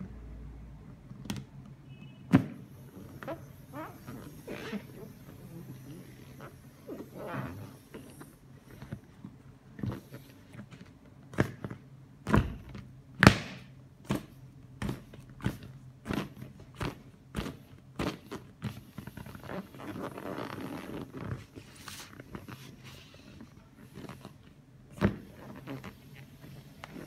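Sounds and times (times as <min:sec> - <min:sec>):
soft plastic rustling: 0:14.3 - 0:27.0.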